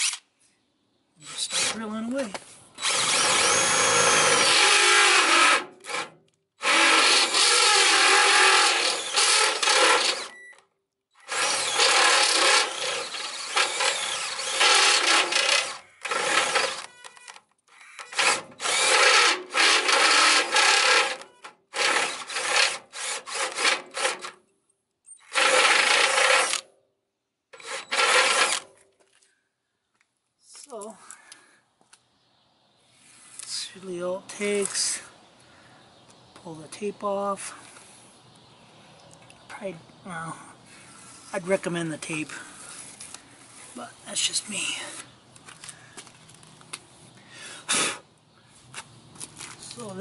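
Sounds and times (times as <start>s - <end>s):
drill drilling through metal: 2.8s - 10.3s, 11.2s - 17.1s, 17.7s - 24.2s, 25.2s - 26.6s, 27.6s - 28.6s.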